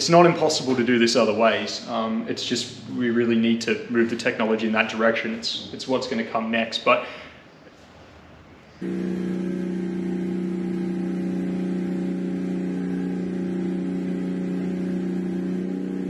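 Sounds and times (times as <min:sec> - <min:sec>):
engine running steadily: 0:08.8 - 0:16.0.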